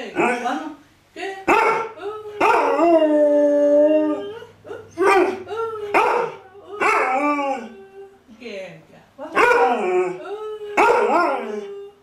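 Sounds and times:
dog howling: 0:01.5 - 0:08.2, 0:09.4 - 0:12.0.

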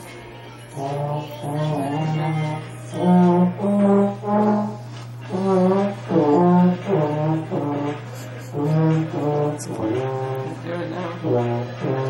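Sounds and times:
baritone horn held notes: 0:00.7 - 0:12.0.

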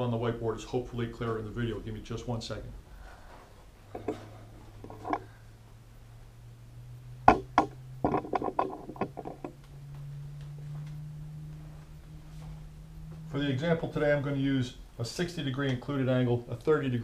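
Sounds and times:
bumps and clatters: 0:07.3 - 0:10.1.

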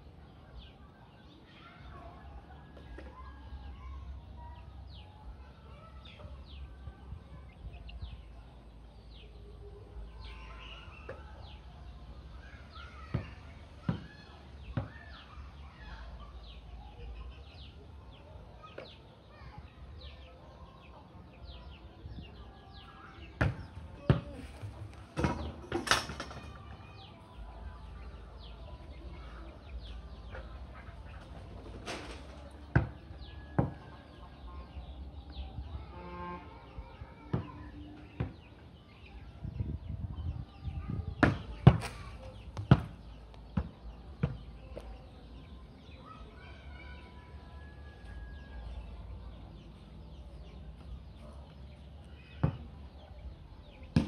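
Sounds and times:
chickens clucking: 0:27.9 - 0:35.0.

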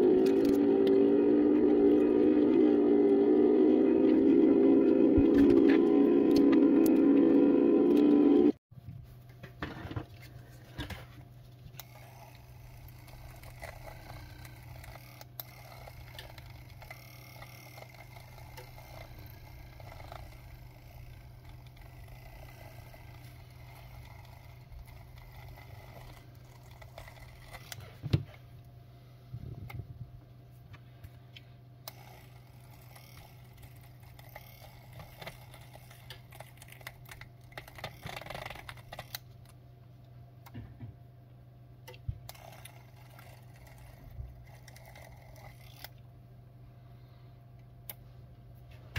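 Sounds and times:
low hum: 0:00.0 - 0:08.6.

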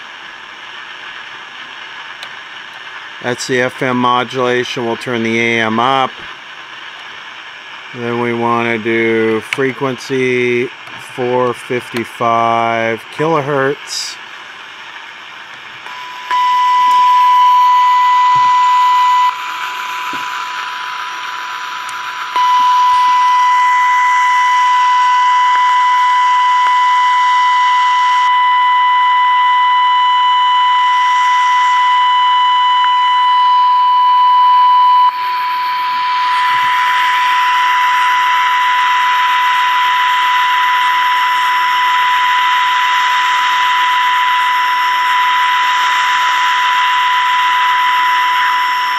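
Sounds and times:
radio speaker hiss: 0:00.0 - 0:48.9
steady test tone: 0:07.9 - 0:14.2, 0:15.8 - 0:48.9.

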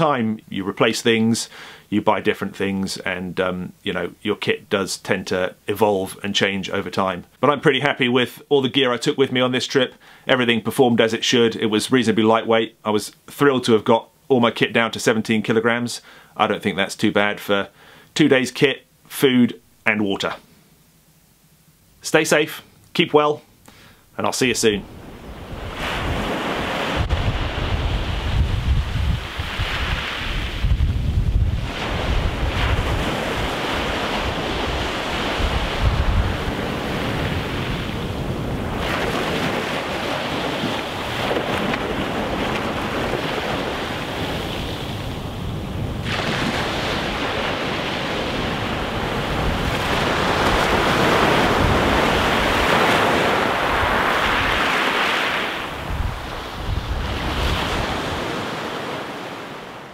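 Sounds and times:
wind rumbling on microphone: 0:24.8 - 0:54.7, 0:55.6 - 0:58.3
waves breaking on pebble shore: 0:24.9 - 0:30.8, 0:31.5 - 0:59.8.

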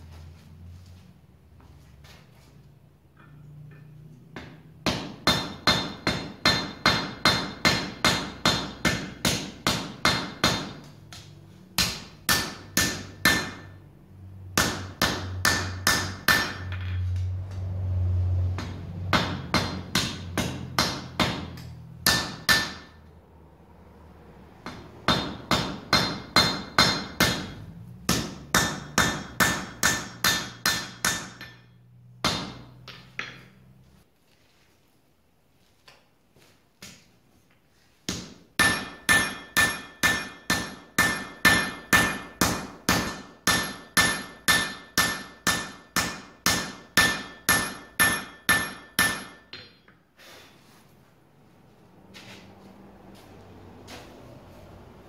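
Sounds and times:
hammer striking iron on anvil: 0:03.2 - 0:13.8, 0:14.5 - 0:17.2, 0:18.6 - 0:23.1, 0:24.6 - 0:33.5, 0:38.1 - 0:50.0.

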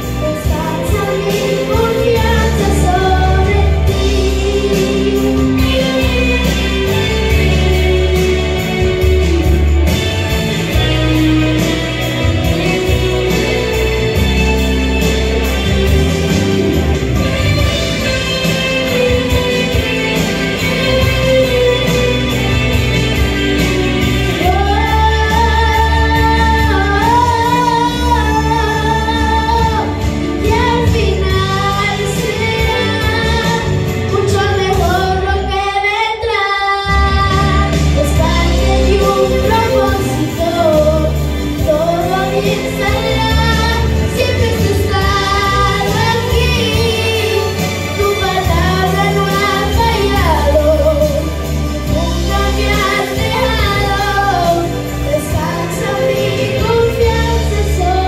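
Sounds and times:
girl singing into a microphone: 0:00.0 - 0:08.4, 0:24.4 - 0:58.0
instrumental backing with bass: 0:00.0 - 0:58.0.

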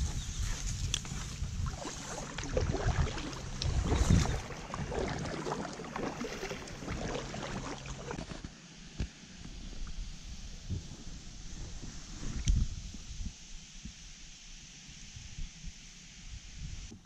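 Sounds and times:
low rumble: 0:00.0 - 0:08.2
reeds rustling against hull: 0:00.0 - 0:08.5
water sloshing: 0:00.6 - 0:08.5.

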